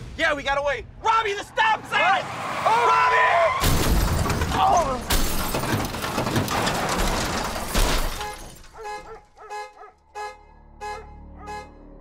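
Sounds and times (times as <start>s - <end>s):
car crash with scraping metal: 3.5s - 9.2s
glass breaking: 3.6s - 9.0s.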